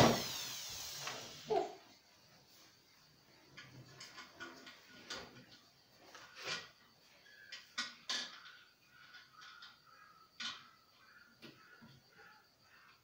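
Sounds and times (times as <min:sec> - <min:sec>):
drill knocking against bracket: 0:00.0 - 0:01.2.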